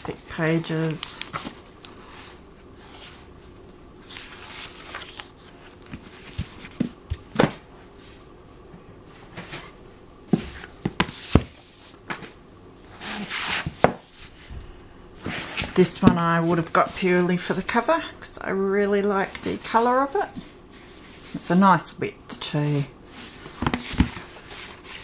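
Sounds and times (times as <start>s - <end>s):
book pages rustling: 0.0s - 7.5s, 15.2s - 17.6s, 23.1s - 25.0s
books knocking on table: 10.3s - 11.5s.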